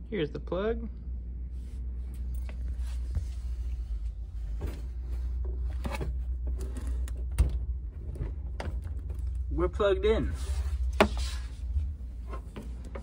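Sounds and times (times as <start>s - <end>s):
steady low rumble: 0.0s - 13.0s
handling knocks and rustles: 2.2s - 9.5s.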